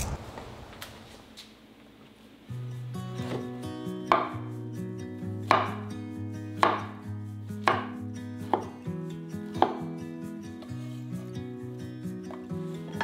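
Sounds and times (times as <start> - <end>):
knife chopping on wooden board: 4.1 - 4.4, 5.4 - 5.9, 6.6 - 7.0, 7.6 - 8.8, 9.6 - 9.9.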